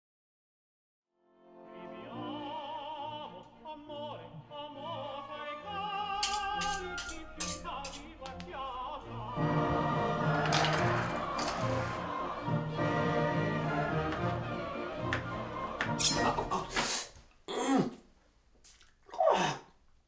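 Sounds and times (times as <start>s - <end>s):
orchestral music: 1.2s - 16.9s
operatic singing with vibrato: 1.7s - 16.9s.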